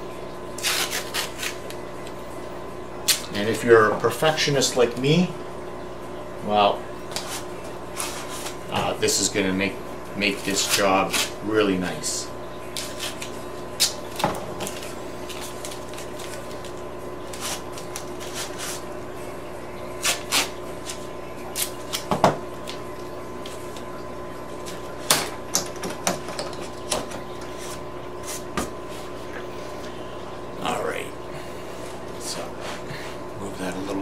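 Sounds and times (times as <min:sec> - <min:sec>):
steady background hum: 0:00.0 - 0:34.0.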